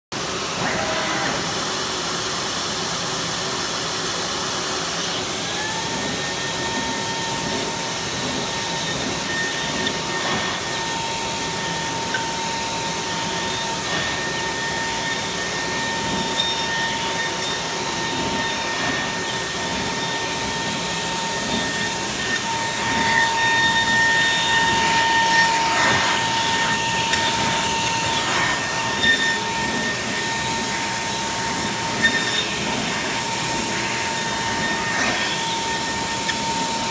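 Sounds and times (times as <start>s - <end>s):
milling spindle whining: 5.1s - 36.9s
rushing machine noise: 5.2s - 36.9s.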